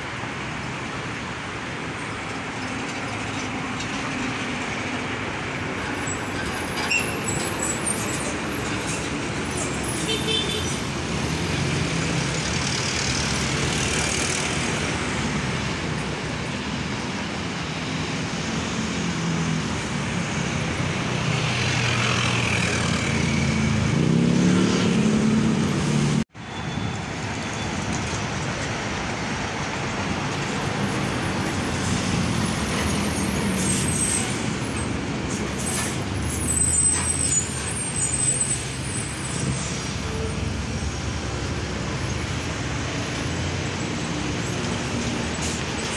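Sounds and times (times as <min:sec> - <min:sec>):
traffic and motorcycles: 0:00.0 - 0:45.9
trucks passing: 0:00.0 - 0:45.9
truck accelerating: 0:18.4 - 0:26.3.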